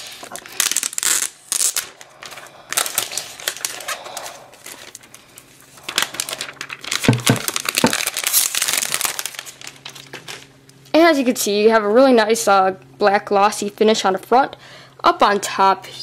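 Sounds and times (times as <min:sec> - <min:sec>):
plastic shrink wrap crinkling: 0:00.0 - 0:10.6.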